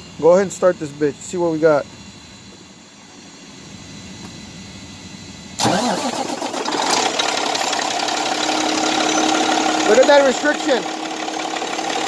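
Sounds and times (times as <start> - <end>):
diesel truck engine starting: 5.6 - 12.0.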